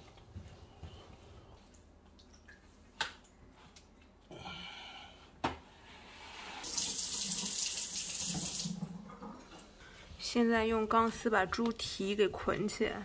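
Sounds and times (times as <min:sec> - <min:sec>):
kitchen tap running: 0:06.6 - 0:09.5.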